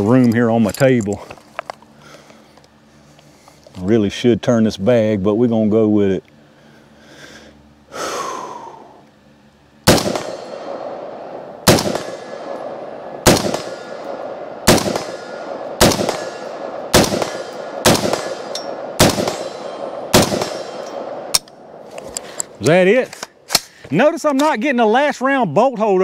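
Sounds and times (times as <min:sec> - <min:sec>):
rifle shots: 0:09.8 - 0:21.8.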